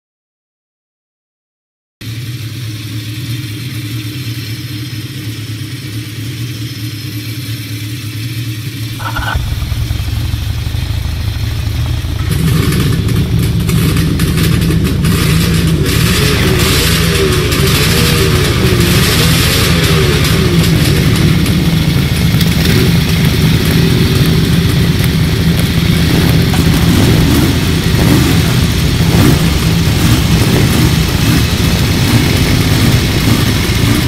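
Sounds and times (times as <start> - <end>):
motorcycle engine revving: 7.6 - 34.0.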